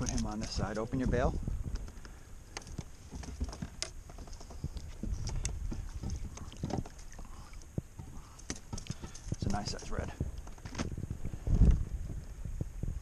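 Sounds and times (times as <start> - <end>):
light water splashes: 1.8 - 11.4.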